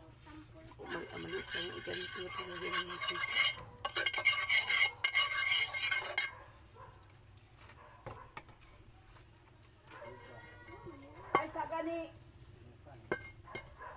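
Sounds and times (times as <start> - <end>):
metal spoon scraping frying pan: 0.7 - 6.4, 13.1 - 13.8.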